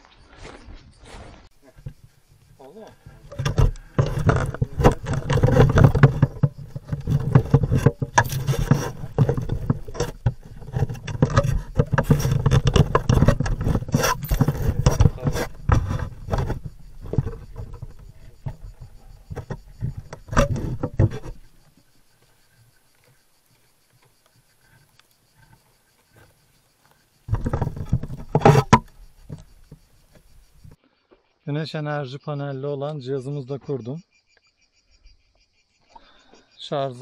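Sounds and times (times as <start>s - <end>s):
hands scraping and knocking on camera: 3.3s - 21.6s, 27.3s - 30.3s.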